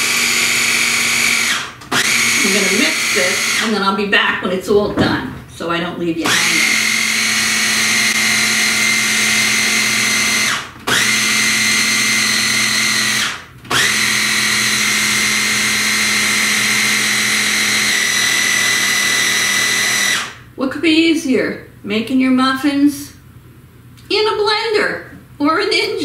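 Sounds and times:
blender motor high whine: 0:00.0 - 0:03.8, 0:06.2 - 0:20.4.

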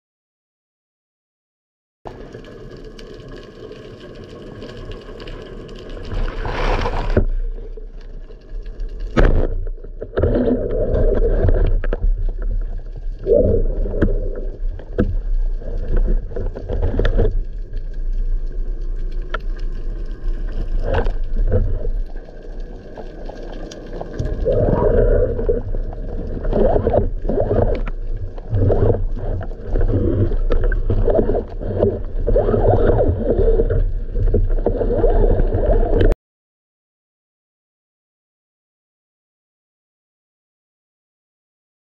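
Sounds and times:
underwater water swirling: 0:03.8 - 0:36.2.

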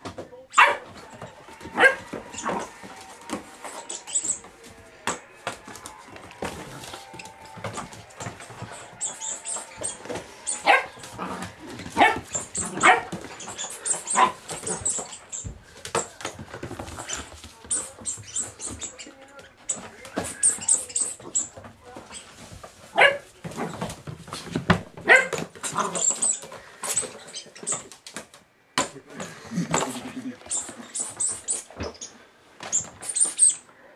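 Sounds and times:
puppy barking: 0:00.5 - 0:00.9, 0:01.8 - 0:02.2, 0:10.5 - 0:11.3, 0:12.0 - 0:13.2, 0:25.0 - 0:26.0
claws scrabbling on hard floor: 0:00.8 - 0:28.4.

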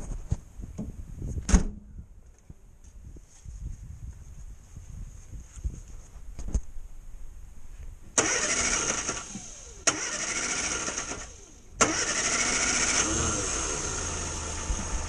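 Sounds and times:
starter motor cranking: 0:08.2 - 0:15.0.

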